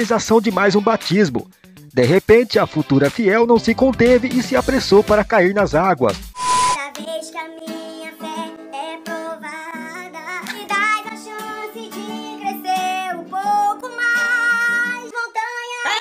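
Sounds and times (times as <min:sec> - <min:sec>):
acoustic guitar: 0:06.2 - 0:16.0
person singing: 0:06.6 - 0:16.0.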